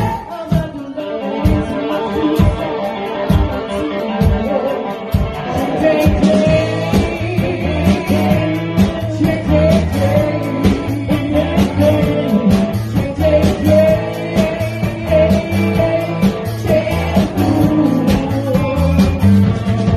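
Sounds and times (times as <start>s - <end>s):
drums beating: 0.0s - 19.9s
electric guitar: 0.0s - 19.9s
person singing: 0.0s - 19.9s
bass line: 5.2s - 19.9s.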